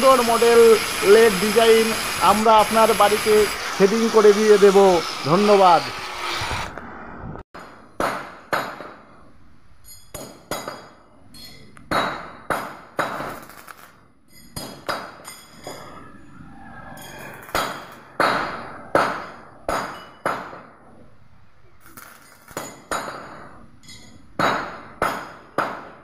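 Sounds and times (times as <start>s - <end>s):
hammer striking steel bars: 7.6s - 9.1s, 9.9s - 13.4s, 14.4s - 15.8s, 17.6s - 20.7s, 22.2s - 26.0s.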